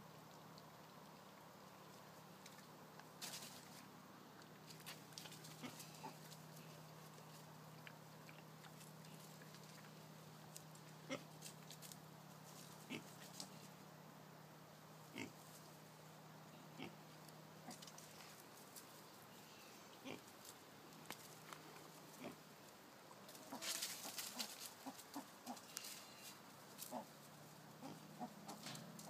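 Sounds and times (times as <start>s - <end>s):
piglets grunting: 5.5s - 6.3s, 11.0s - 11.3s, 16.7s - 17.9s, 26.8s - 27.1s, 27.8s - 29.0s.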